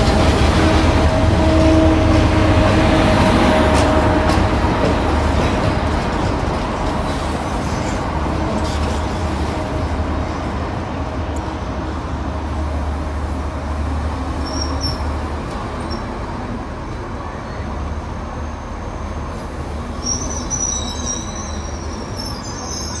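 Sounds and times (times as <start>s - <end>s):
train wheels rumbling on rail: 0.0s - 23.0s
high-pitched wheel squeals: 20.0s - 23.0s.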